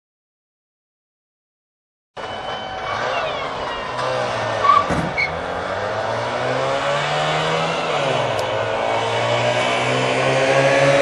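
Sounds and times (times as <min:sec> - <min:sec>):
two-stroke car engines revving: 0:02.8 - 0:11.0.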